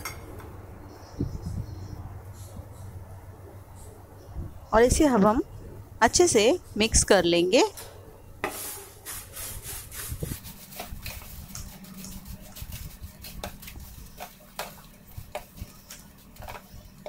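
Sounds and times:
wooden spoon stirring puffed rice: 8.5 - 17.0.

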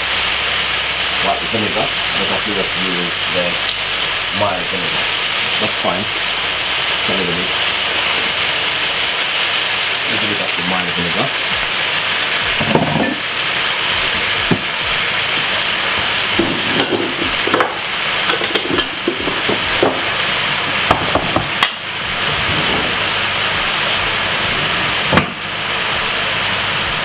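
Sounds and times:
vegetables sizzling in hot oil: 0.0 - 27.0
wooden spoon scraping a pan: 14.0 - 20.1.

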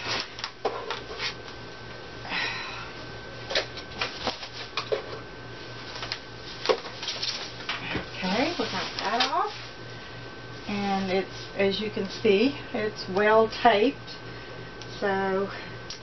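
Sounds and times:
foam packaging rustling and crackling: 5.8 - 9.8.

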